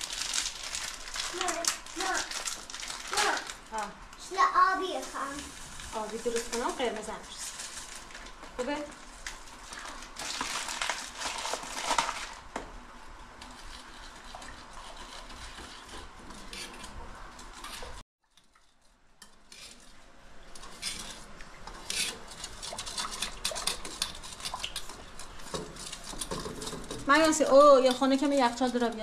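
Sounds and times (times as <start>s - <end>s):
metal spoon stirring in metal bowl: 13.4s - 29.0s.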